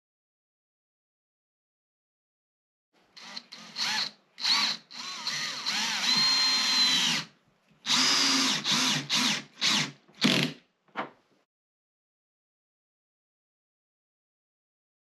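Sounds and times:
cordless drill motor whine: 3.2s - 7.3s, 7.9s - 9.9s.

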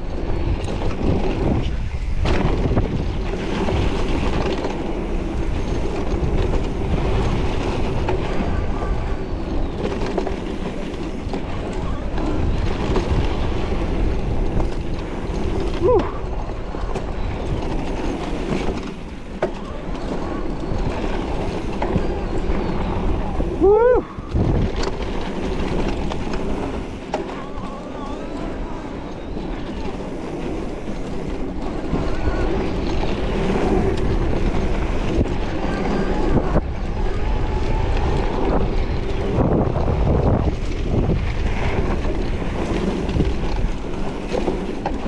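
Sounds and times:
bike rattling: 0.0s - 45.0s
tyres rolling on dirt trail: 0.0s - 45.0s
wind buffeting the microphone: 0.0s - 45.0s
wind rushing: 20.6s - 27.1s, 30.0s - 44.8s.

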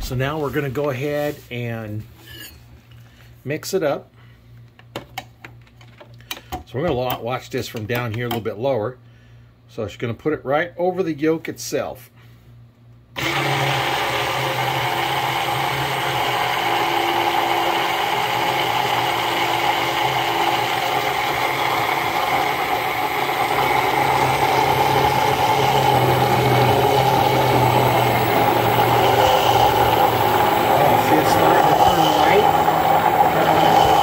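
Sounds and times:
immersion blender motor running: 13.2s - 34.0s.

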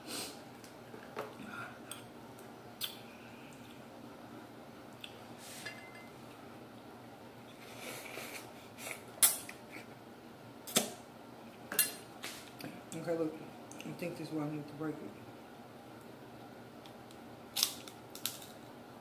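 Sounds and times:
crab shell cracking with metal utensil: 17.5s - 18.6s.

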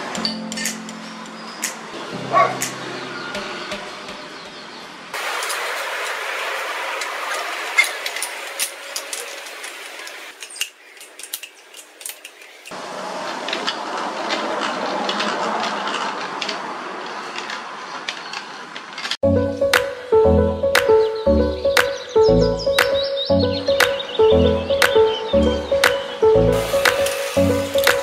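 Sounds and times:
metal parts clinking: 7.8s - 12.6s.

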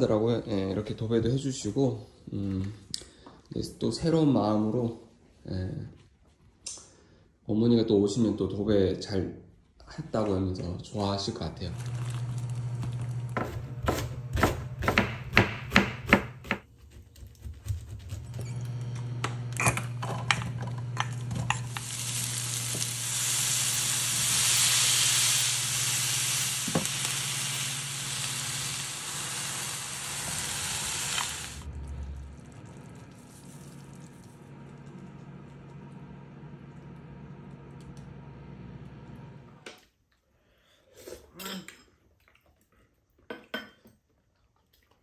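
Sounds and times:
onions and garlic sizzling in oil: 11.7s - 16.6s, 18.4s - 34.7s.

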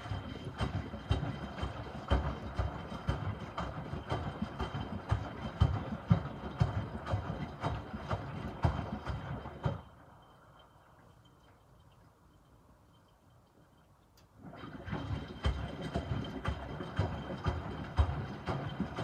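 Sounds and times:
laundry sloshing in washing machine: 0.0s - 10.2s, 14.4s - 19.0s
faint high whine: 9.8s - 14.4s.

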